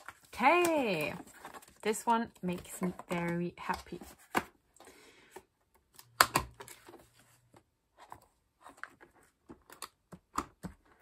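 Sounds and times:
plastic pages crinkling: 0.0s - 4.4s.

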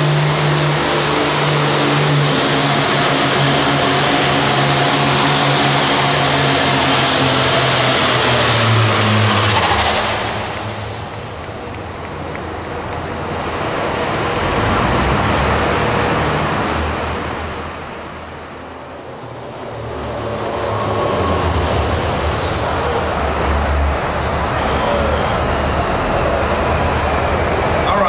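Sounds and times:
tractor engines running loudly: 0.0s - 28.0s.

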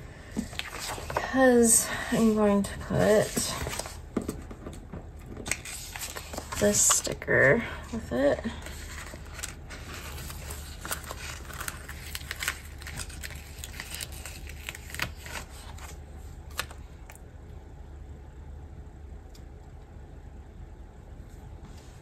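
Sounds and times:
steady low hum: 0.0s - 22.0s
paper sticker sheet crackling: 5.4s - 7.2s, 8.2s - 16.8s.

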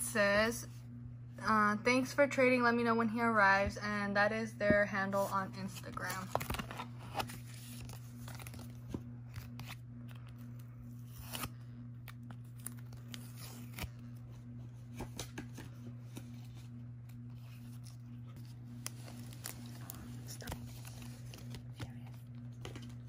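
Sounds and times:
steady low hum: 0.0s - 23.0s
tape peeling off plastic: 6.3s - 14.1s.

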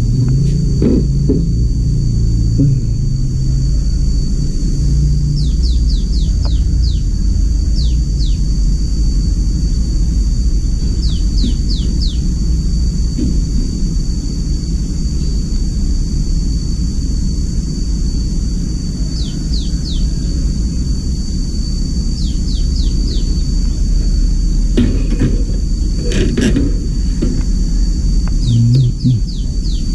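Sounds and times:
steady low rumble: 0.0s - 29.9s
high falling chirps: 28.4s - 29.9s.

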